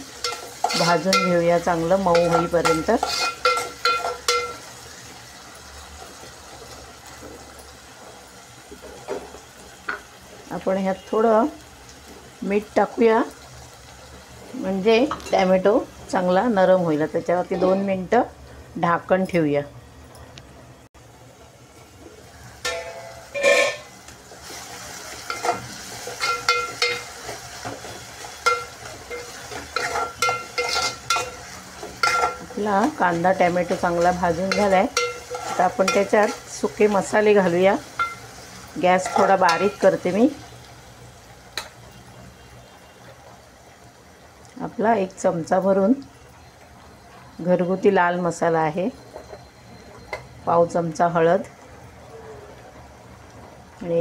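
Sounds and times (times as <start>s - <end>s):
vegetables sizzling in oil: 0.0s - 19.8s, 20.8s - 54.0s
spatula scraping metal pot: 0.2s - 1.4s, 2.1s - 4.5s, 22.7s - 23.9s, 25.2s - 32.5s, 33.7s - 36.5s
metal pot lid clanking: 2.1s - 4.6s, 22.6s - 23.9s, 25.3s - 32.5s, 39.0s - 39.8s.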